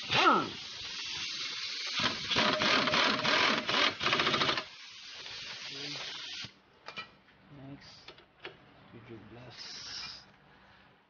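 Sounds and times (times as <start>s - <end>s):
steady air hiss: 0.0s - 2.3s, 4.6s - 6.6s, 9.5s - 10.3s
air impact wrench rattling: 0.6s - 5.5s.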